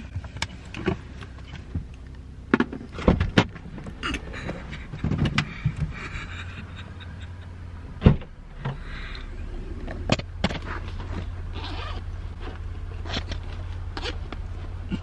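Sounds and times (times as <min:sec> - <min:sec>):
low steady hum: 0:00.0 - 0:15.0
car doors opening and shutting: 0:02.5 - 0:06.0, 0:07.8 - 0:14.8.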